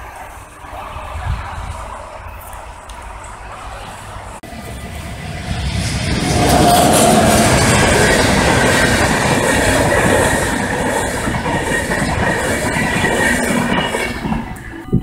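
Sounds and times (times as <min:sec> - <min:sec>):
train rumbling past: 0:00.0 - 0:15.0
wheels clattering over rails: 0:04.4 - 0:15.0.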